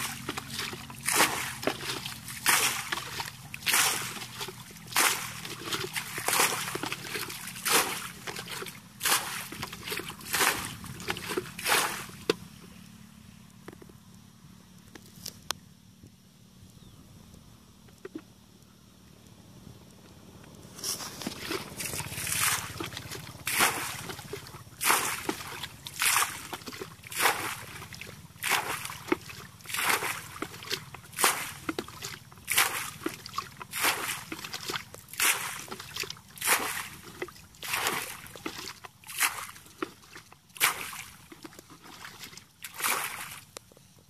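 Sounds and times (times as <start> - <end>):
water splashing from basin: 0.0 - 12.5, 21.2 - 43.5.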